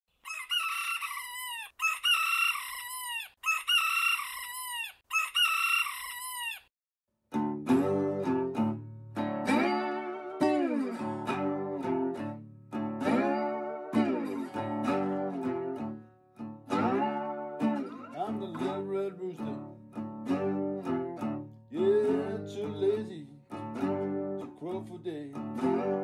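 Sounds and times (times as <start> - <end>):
rooster crowing: 0.2 - 6.7
acoustic blues guitar: 7.3 - 26.0.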